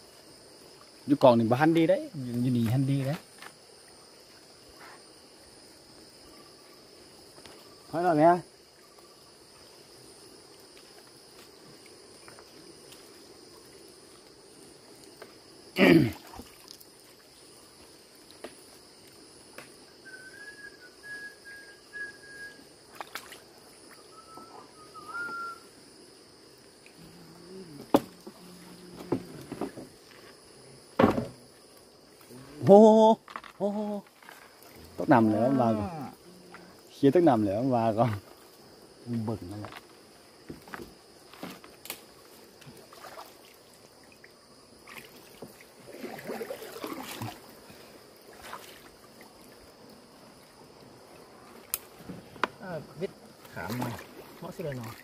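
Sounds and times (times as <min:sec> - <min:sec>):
high-pitched insect chorus: 0:00.0 - 0:55.0
water splashing and dripping: 0:10.4 - 0:19.7, 0:22.9 - 0:24.0, 0:40.5 - 0:52.1, 0:53.4 - 0:55.0
long whistled note: 0:20.0 - 0:22.7, 0:24.0 - 0:25.7.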